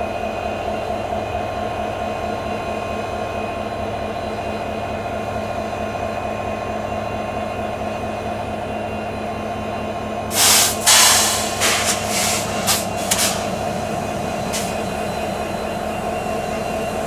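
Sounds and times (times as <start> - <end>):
short loud hisses: 10.3 - 14.8
locomotives idling: 10.3 - 17.0.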